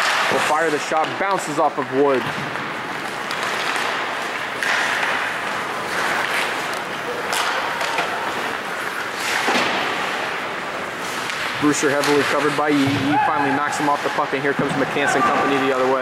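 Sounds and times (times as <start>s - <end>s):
puck and sticks knocking: 0.0s - 10.4s
skates scraping on ice: 0.0s - 16.0s.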